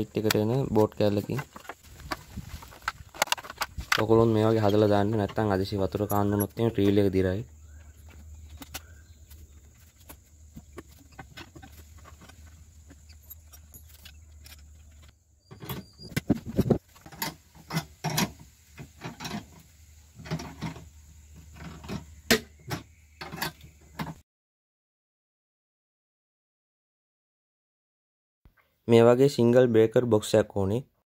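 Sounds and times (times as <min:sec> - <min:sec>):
metal parts clinking: 0:11.1 - 0:15.9.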